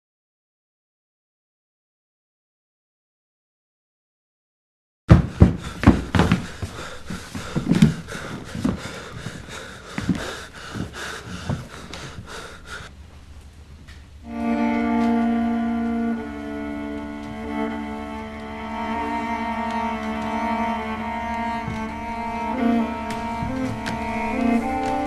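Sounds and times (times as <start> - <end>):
irregular knocks and thuds: 5.1 - 12.8, 20.0 - 25.0
cello bowed sustained notes: 14.2 - 25.0.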